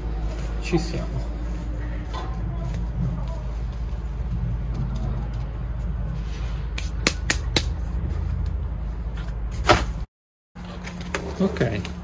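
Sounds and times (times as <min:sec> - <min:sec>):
steady low rumble: 0:00.0 - 0:09.5.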